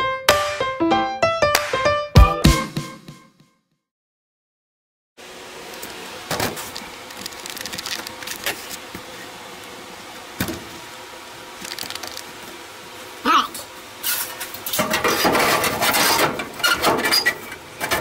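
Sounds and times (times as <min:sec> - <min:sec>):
steady background hum: 0:05.2 - 0:18.0
crackles: 0:05.7 - 0:09.0, 0:11.5 - 0:12.6.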